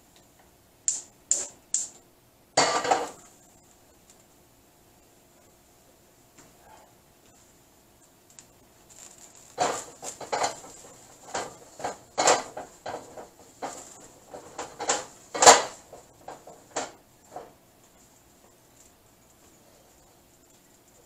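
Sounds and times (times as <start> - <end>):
wok knocking and scraping on grate: 2.6 - 3.2, 9.4 - 17.6.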